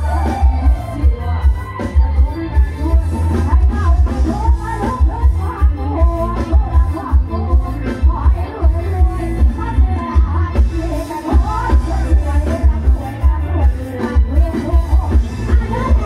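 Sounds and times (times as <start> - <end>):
heavy bass beat: 0.0 - 16.0
person singing: 0.0 - 16.0.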